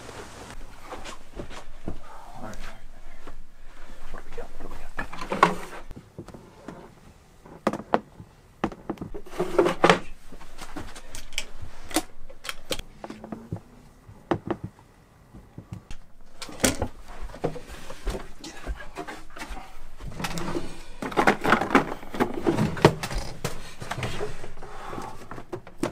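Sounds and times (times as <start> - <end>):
drawers sliding scrapes: 5.1 - 5.9, 9.2 - 12.2, 19.1 - 25.2
wooden drawers knocking and clicking: 12.4 - 14.8, 20.1 - 24.4, 25.3 - 25.9.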